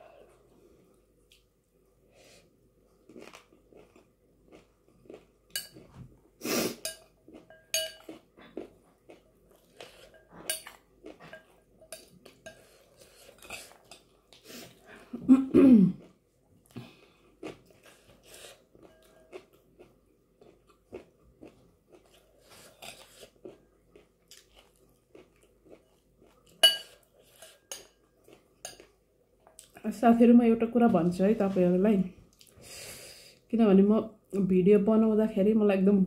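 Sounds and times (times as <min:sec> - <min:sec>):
chewing and crunching: 0:02.9 - 0:06.0, 0:07.0 - 0:14.9, 0:16.0 - 0:29.8
metal spoon clinking in glass bowl: 0:06.9 - 0:08.1, 0:26.6 - 0:28.0.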